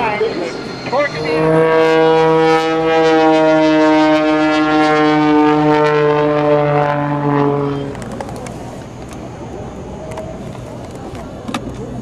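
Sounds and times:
fire truck air horn blast: 1.1 - 8.0.

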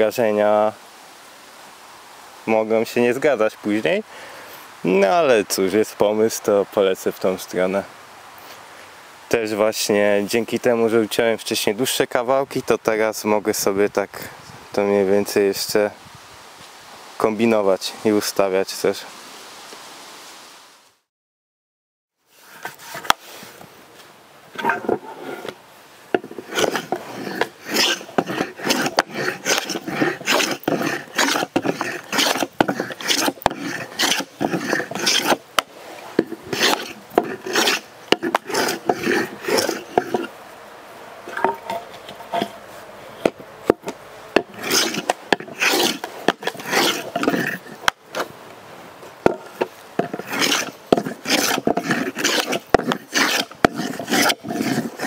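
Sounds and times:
rasping strokes on wood: 24.6 - 25.6, 26.2 - 40.4, 41.3 - 48.3, 49.2 - 55.0.

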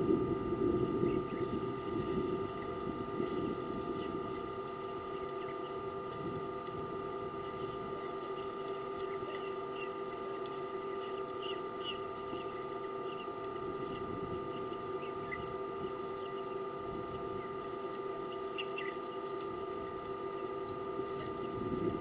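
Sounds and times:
steady hum: 0.0 - 22.0
faint bird chirps: 10.9 - 16.6, 18.2 - 19.4.

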